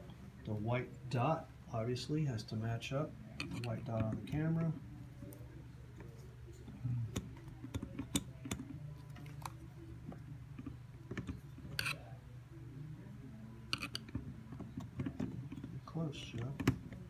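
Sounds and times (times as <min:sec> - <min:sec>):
camera lens clicks and scrapes: 0:11.6 - 0:12.0, 0:13.7 - 0:14.1.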